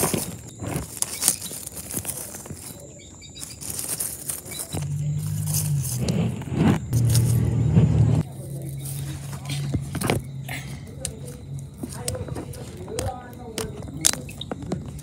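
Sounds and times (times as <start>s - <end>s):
dry leaves rustling and crunching: 0.0s - 15.0s
low steady motor drone: 4.8s - 13.6s.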